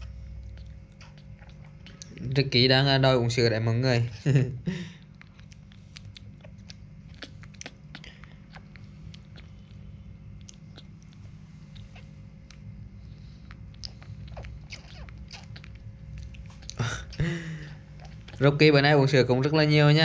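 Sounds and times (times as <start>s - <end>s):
low steady rumble: 0.0s - 20.0s
monkey sucking from bottle: 13.8s - 15.8s.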